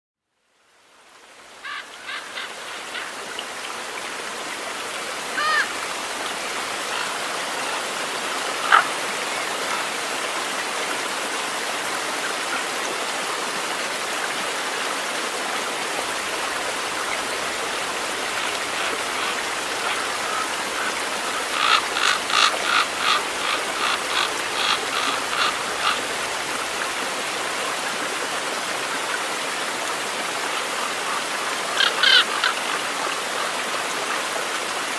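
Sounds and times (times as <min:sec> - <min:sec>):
stream running over rocks: 0:00.4 - 0:34.9
bird calling: 0:01.6 - 0:03.1, 0:05.4 - 0:05.8, 0:08.6 - 0:08.9, 0:17.9 - 0:26.7, 0:31.8 - 0:32.6.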